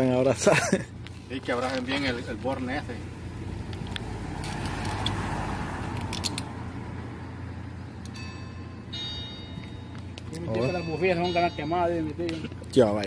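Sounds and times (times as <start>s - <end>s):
car engine idling: 0.0s - 13.0s
metallic clicks of cable clamps: 5.9s - 6.5s.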